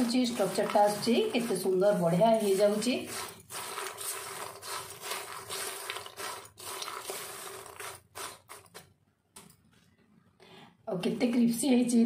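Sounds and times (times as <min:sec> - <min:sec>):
seeds scraping in a wok: 0:00.0 - 0:08.9.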